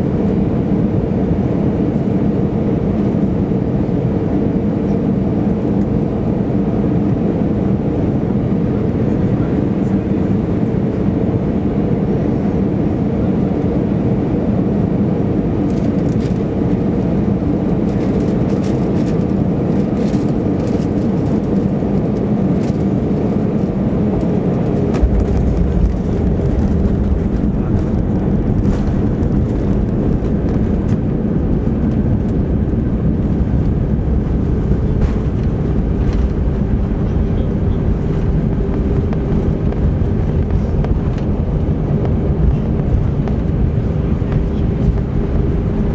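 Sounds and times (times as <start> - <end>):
aircraft cabin engine rush: 0.0 - 45.9
tyres rumbling on runway: 13.0 - 45.9.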